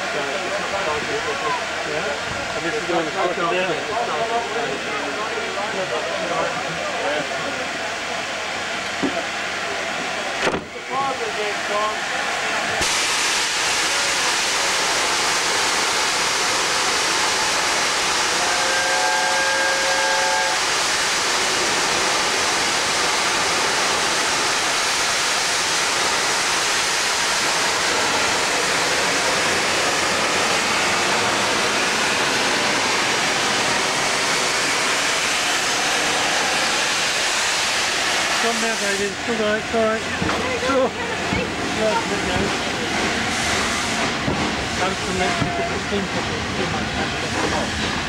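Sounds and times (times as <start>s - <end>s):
steam locomotive blowing off steam: 0.0s - 48.0s.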